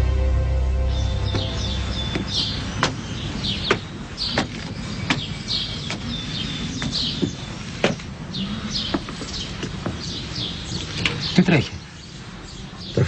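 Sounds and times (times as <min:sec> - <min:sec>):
small birds chirping: 0:00.8 - 0:13.0.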